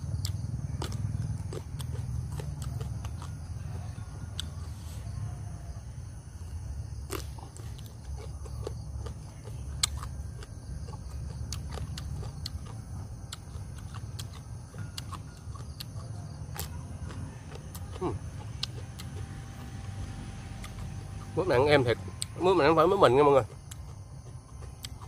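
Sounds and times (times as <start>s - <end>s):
person chewing: 0.1s - 4.8s, 7.0s - 19.8s, 20.5s - 21.3s, 23.4s - 25.0s.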